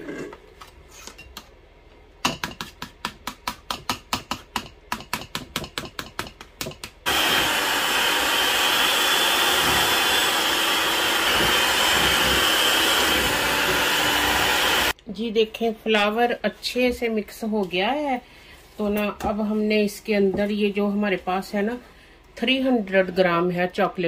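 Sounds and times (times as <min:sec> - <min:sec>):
electric hand mixer whirring: 0:07.1 - 0:15.0.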